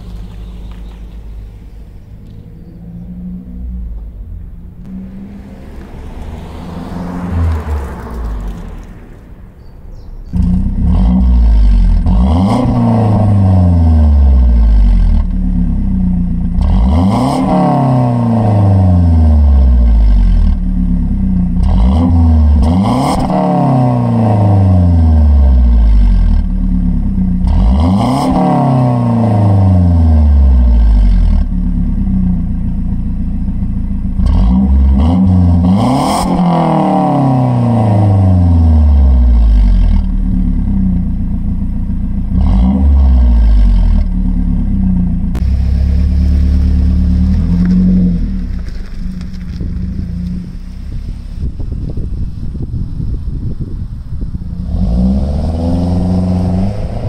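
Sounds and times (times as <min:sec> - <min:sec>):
car engine idling and revving: 0:00.0 - 0:57.0.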